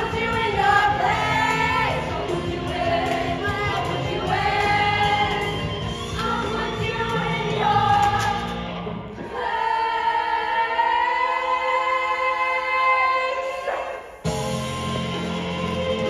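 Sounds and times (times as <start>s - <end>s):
live band accompaniment: 0.0s - 9.1s, 14.3s - 16.0s
ensemble singing: 0.0s - 16.0s.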